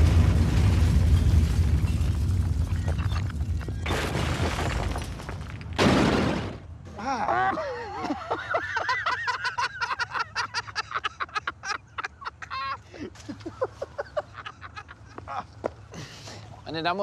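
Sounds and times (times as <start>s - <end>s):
men laughing hard: 7.0s - 15.7s.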